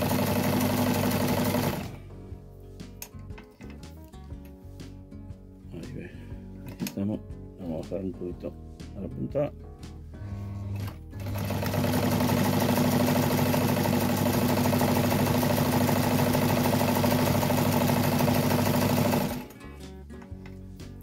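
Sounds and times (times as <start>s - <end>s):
sewing machine motor hum: 0.0s - 2.0s, 10.2s - 19.5s.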